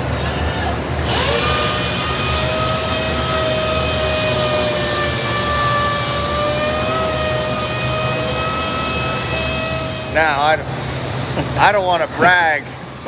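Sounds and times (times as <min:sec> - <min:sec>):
disc sander whine: 0:01.0 - 0:10.4.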